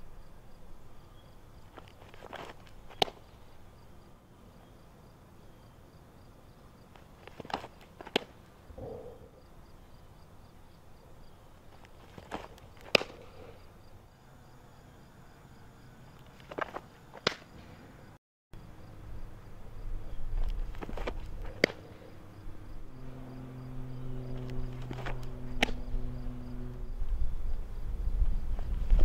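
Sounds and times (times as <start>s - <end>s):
faint insects chirping: 0.0s - 29.0s
softball smacking into mitt: 2.9s - 3.2s, 12.2s - 13.3s, 16.5s - 17.5s, 20.8s - 21.8s.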